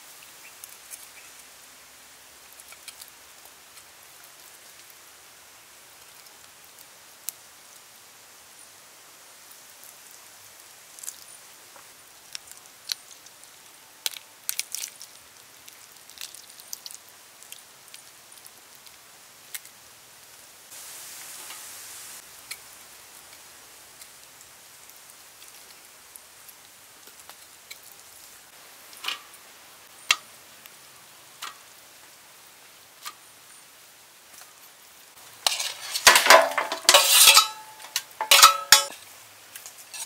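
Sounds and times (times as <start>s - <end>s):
faint steady hiss: 0.0s - 40.0s
small clicks and snaps of bones: 12.2s - 13.4s, 14.0s - 18.1s.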